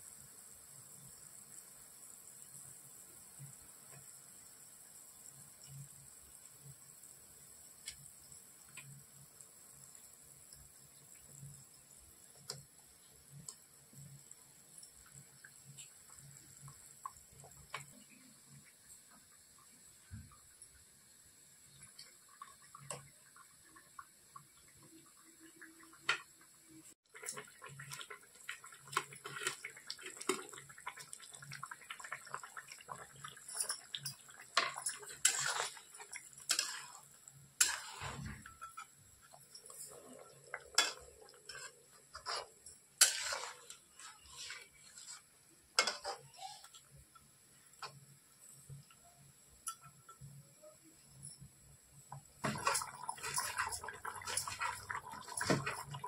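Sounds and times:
metal utensils clinking on pots: 0:32.2 - 0:45.2, 0:45.8 - 0:46.5, 0:49.6 - 0:50.3, 0:52.4 - 0:56.0.

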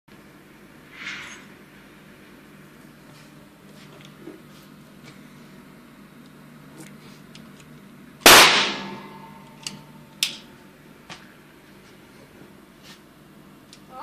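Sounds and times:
pistol shot with echo: 0:08.3 - 0:09.3.

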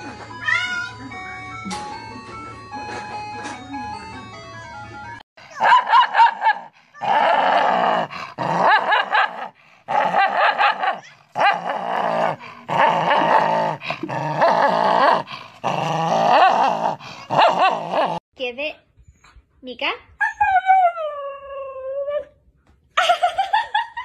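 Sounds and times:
dog growling and snarling: 0:05.4 - 0:18.2.

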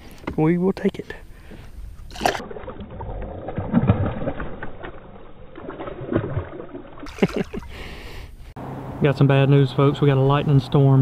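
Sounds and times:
fish splashing at water surface: 0:02.1 - 0:07.9.

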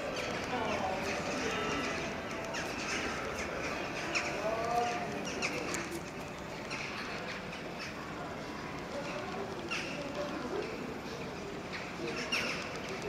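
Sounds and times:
crows calling: 0:00.0 - 0:05.9
steady background hum: 0:00.0 - 0:13.0.

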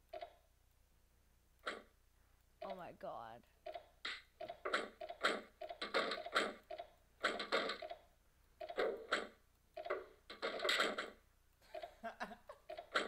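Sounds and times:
cartoon door swinging sounds: 0:03.7 - 0:08.0, 0:08.6 - 0:11.2.

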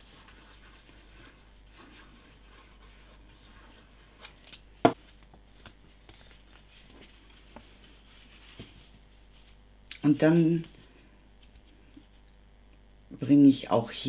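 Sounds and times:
cardstock rustling and scraping: 0:00.0 - 0:09.6.

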